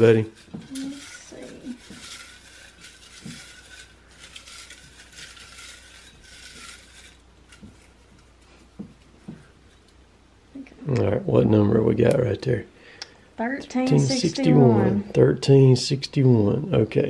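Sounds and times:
paper slips rustling in a jar: 0.0 - 9.1.

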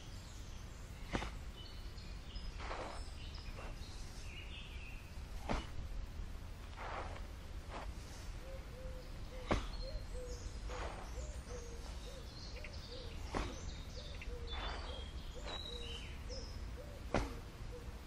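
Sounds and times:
small birds chirping: 0.0 - 18.0
foot stamping on sandy dirt: 0.9 - 8.4, 9.2 - 18.0
bird hooting: 8.4 - 13.2, 14.0 - 18.0
scuffing footsteps: 14.6 - 15.9.

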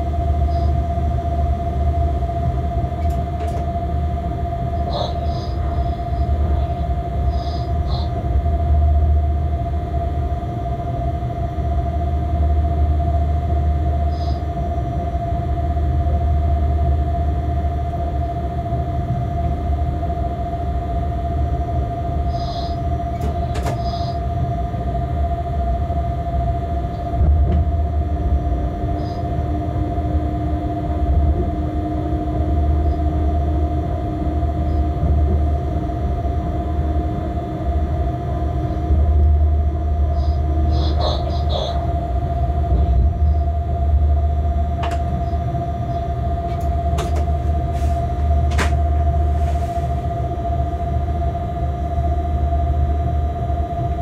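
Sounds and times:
constant hum: 0.0 - 54.0
locomotive wheels rumbling: 26.8 - 51.7.

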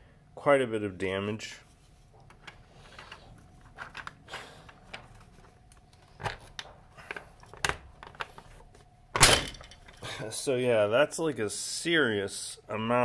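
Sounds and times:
plastic cracks: 3.6 - 8.5.

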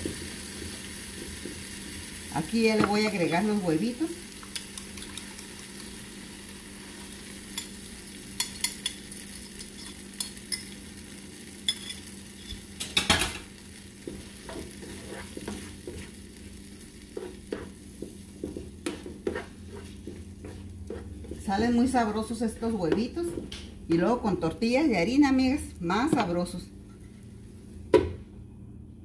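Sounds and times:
eggs sizzling in oil: 0.0 - 23.6
spatula scraping a pan: 14.1 - 16.3, 17.0 - 21.4.

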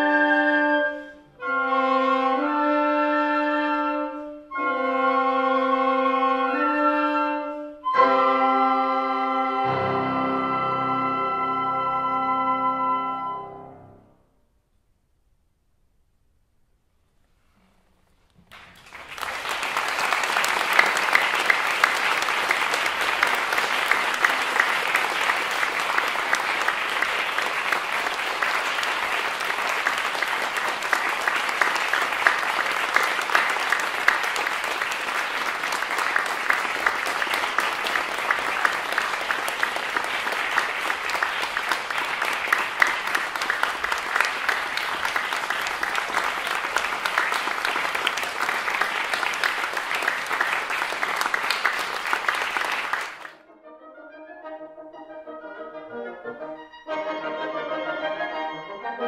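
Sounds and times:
audience applauding: 18.4 - 53.4.

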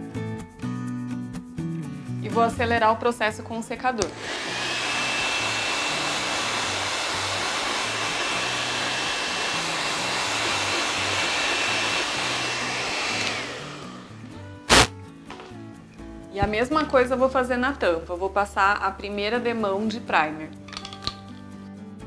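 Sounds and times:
hair dryer blowing: 4.0 - 14.9.

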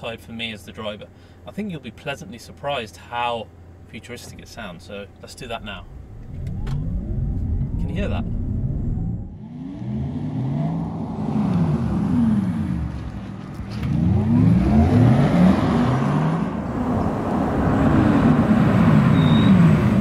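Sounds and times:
electric car drive whine: 5.5 - 20.0.

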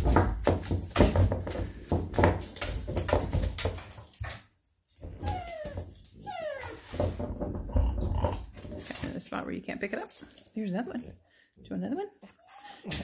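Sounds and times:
dog whining: 4.9 - 7.2.

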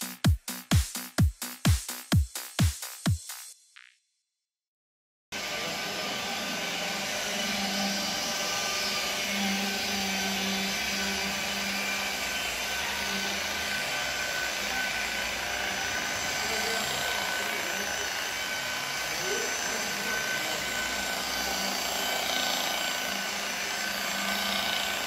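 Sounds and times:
electric car polisher running: 5.4 - 25.0.

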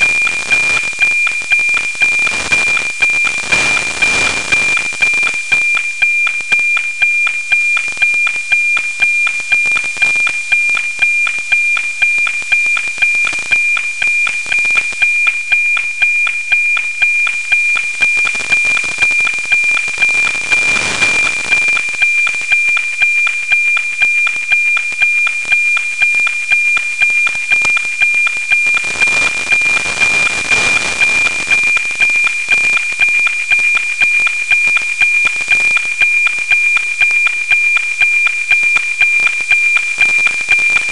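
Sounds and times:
static hiss: 0.0 - 5.7, 17.8 - 23.4, 28.7 - 35.8
satellite signal tone ticking: 0.0 - 40.9.

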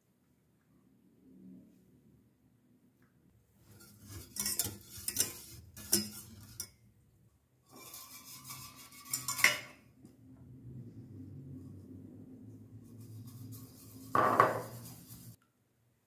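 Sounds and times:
whisk scraping metal saucepan: 3.6 - 6.8, 7.7 - 9.9, 12.8 - 15.4.

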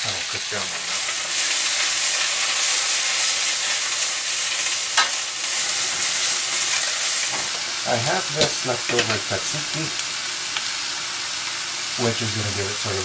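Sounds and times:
food sizzling in pans: 0.0 - 13.0.

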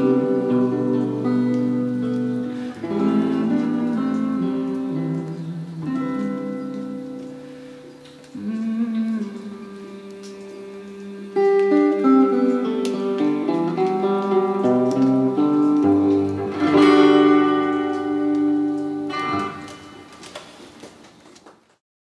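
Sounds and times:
archtop guitar playing: 0.0 - 20.4.

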